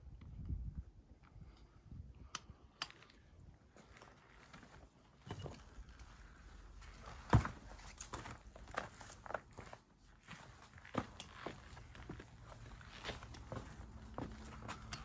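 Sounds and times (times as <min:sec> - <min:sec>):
footsteps: 0:06.8 - 0:15.0.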